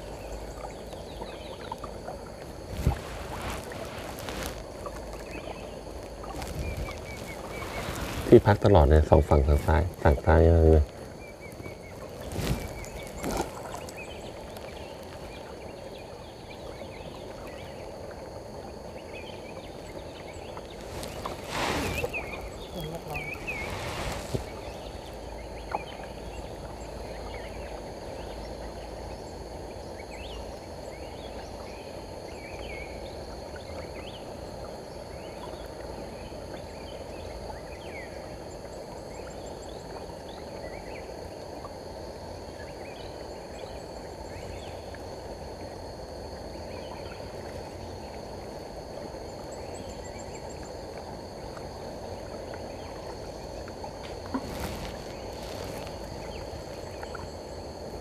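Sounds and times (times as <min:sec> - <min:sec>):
rushing water: 0:00.0 - 0:15.5, 0:20.4 - 0:25.6
wind noise: 0:02.5 - 0:04.9, 0:06.1 - 0:11.0, 0:20.7 - 0:25.3.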